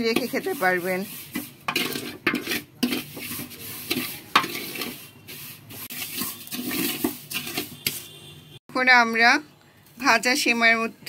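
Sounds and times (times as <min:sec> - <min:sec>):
noodles frying: 0:00.0 - 0:08.1
spatula scraping metal pot: 0:00.0 - 0:08.2.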